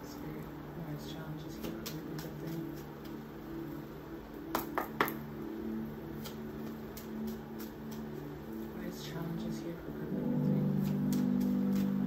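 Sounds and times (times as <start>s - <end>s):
low steady hum: 0.0s - 12.0s
cards being shuffled: 1.6s - 3.2s, 6.2s - 8.7s, 10.8s - 12.0s.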